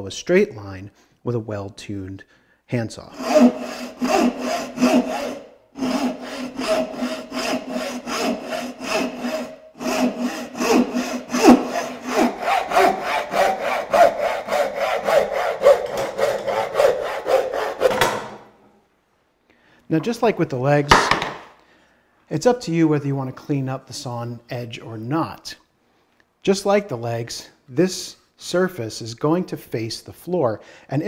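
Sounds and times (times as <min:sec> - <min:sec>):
hand saw cutting wood: 0:03.1 - 0:18.5.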